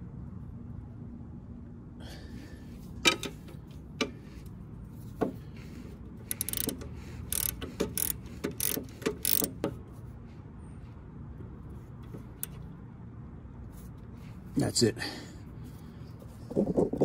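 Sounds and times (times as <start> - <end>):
ratchet wrench clicking: 6.2 - 9.8, 12.0 - 12.6.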